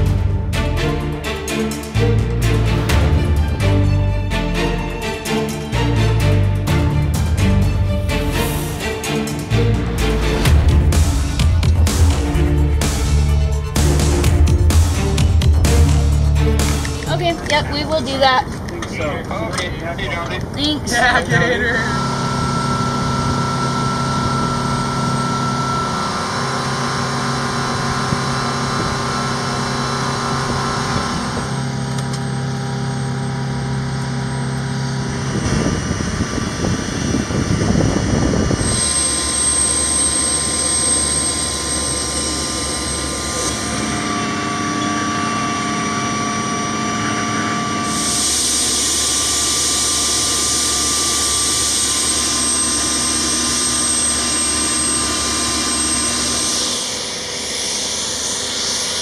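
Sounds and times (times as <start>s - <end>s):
helicopter turbine whine: 0.0s - 59.0s
high thin whine: 20.6s - 59.0s.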